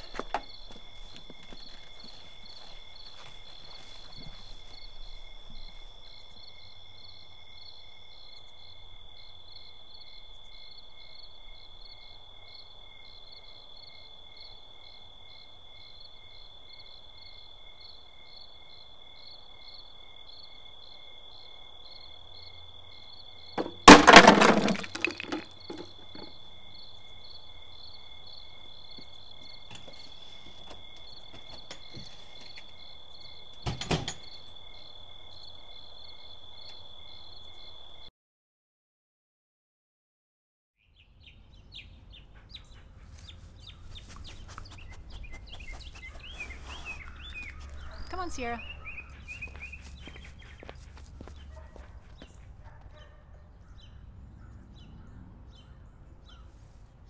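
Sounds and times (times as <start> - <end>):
crickets chirping: 0.0 - 38.1, 41.2 - 55.0
statue smashing: 23.6 - 26.3
pieces clattering: 23.6 - 26.4.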